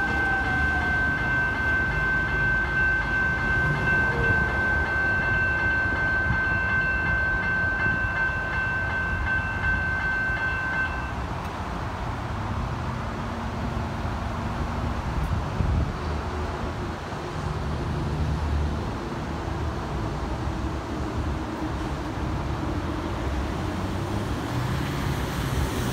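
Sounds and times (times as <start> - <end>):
level crossing bells ringing: 0.0 - 11.3
electric train rumbling: 0.0 - 25.9.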